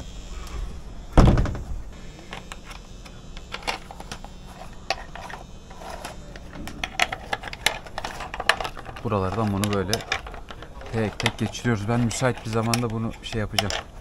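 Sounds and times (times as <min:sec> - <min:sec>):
heavy thump: 0:01.2 - 0:01.9.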